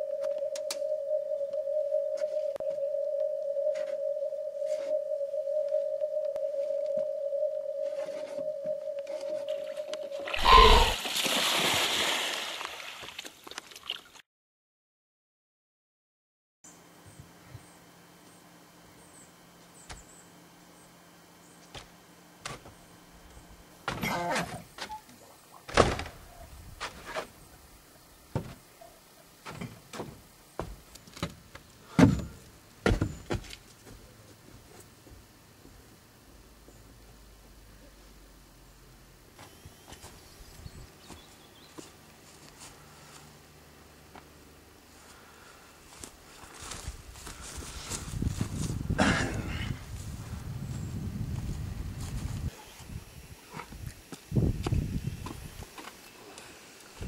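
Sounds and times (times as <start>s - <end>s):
steady held tone: 0.0s - 11.0s
irregular knocks and thumps: 29.4s - 33.5s.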